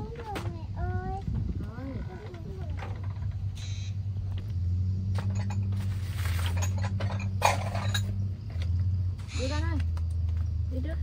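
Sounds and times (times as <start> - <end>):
vehicle engine humming: 0.0 - 11.0
rattling knocks: 2.2 - 3.5, 5.1 - 9.0.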